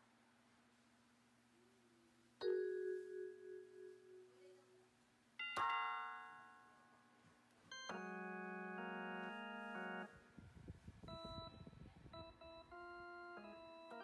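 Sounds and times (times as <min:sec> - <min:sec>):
electronic keyboard notes: 0:05.4 - 0:06.8, 0:07.7 - 0:14.0
keyboard chord held: 0:07.9 - 0:10.4.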